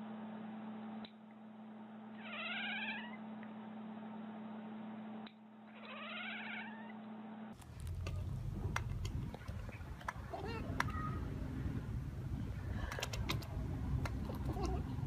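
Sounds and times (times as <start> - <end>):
steady low hum: 0.0 - 15.0
cat meowing: 2.2 - 3.2, 5.7 - 7.0.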